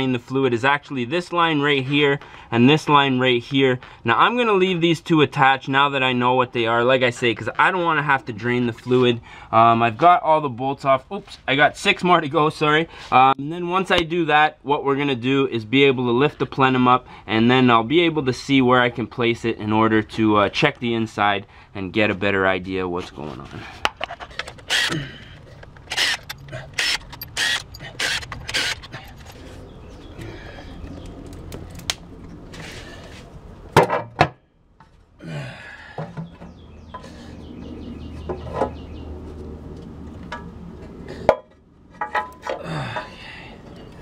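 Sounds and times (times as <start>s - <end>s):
metal part clanking: 23.8s - 29.5s, 41.3s - 43.1s
metallic clicks of parts handled: 23.9s - 29.5s
power drill running in spurts: 25.9s - 28.8s.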